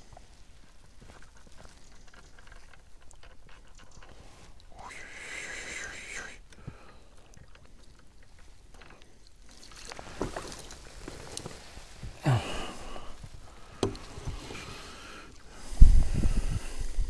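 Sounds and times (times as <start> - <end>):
water dripping: 0.1 - 11.9
water splashing: 0.2 - 15.8.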